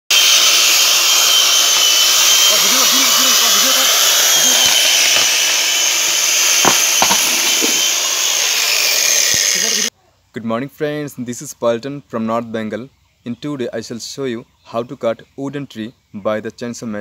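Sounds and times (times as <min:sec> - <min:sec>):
electric chainsaw cutting wood: 0:00.1 - 0:09.9
sharp knocks: 0:06.6 - 0:08.0.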